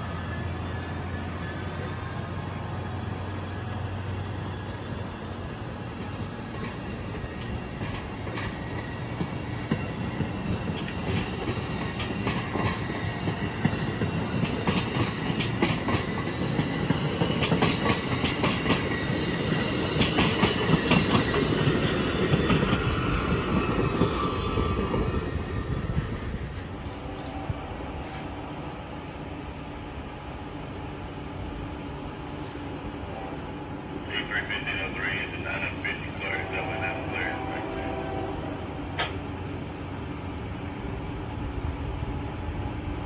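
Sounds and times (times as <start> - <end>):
train wheels rumbling on rail: 0.0 - 43.0
wheels clicking over rail joints: 5.9 - 25.1.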